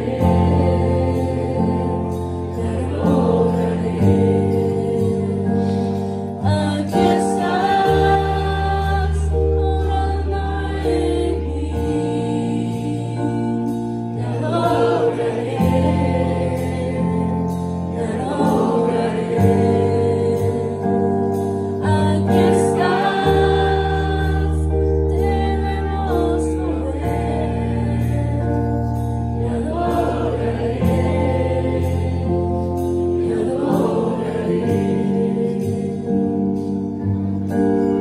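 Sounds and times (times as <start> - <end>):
keyboard chords: 0.0 - 38.0
woman singing: 6.4 - 13.6, 21.8 - 27.5.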